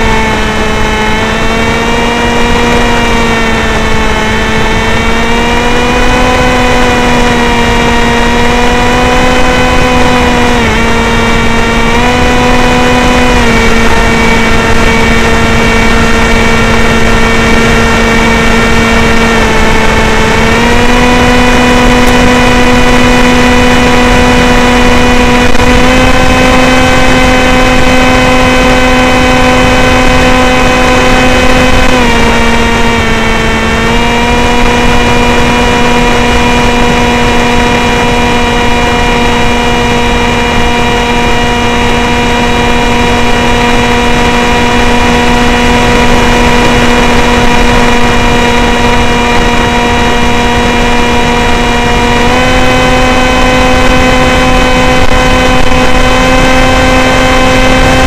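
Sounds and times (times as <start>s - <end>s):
electric motor and propeller whine: 0.0s - 58.0s
wind noise: 0.0s - 58.0s.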